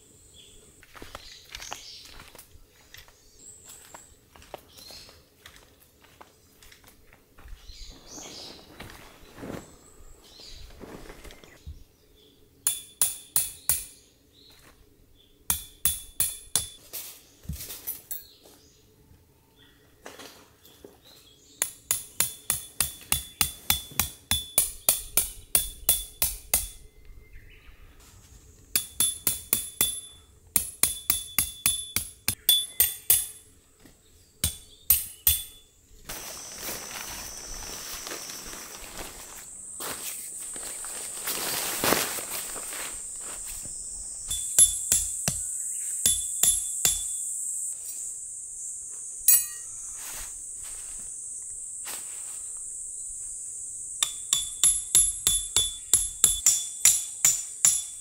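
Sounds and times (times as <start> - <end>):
hammer striking metal: 12.6 - 14.0, 15.5 - 16.8, 21.6 - 26.8, 28.7 - 33.5, 34.4 - 35.6, 44.3 - 47.2, 49.3 - 49.7, 54.0 - 58.0.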